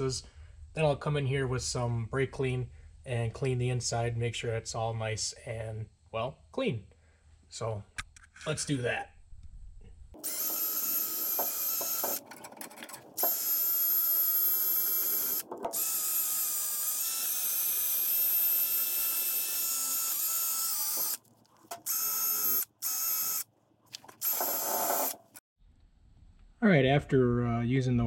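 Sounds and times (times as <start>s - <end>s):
drill wire wheel whining: 10.2s - 23.5s, 24.1s - 25.4s.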